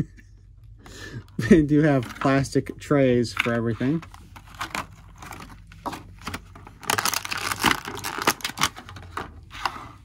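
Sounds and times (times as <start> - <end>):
plastic packaging crinkling: 3.4 - 9.8.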